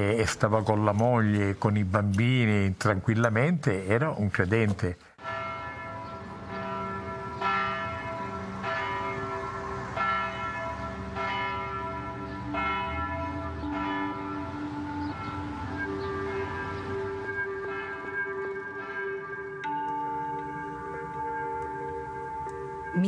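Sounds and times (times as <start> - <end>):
church bells ringing: 5.2 - 23.0.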